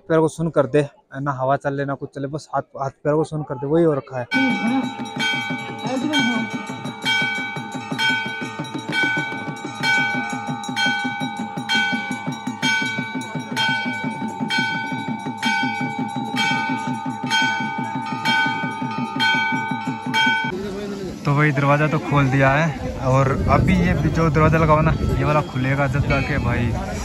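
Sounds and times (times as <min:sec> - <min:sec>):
temple bell ringing: 0:04.3 - 0:20.6, 0:23.8 - 0:26.6
rapid low beat: 0:04.4 - 0:20.6.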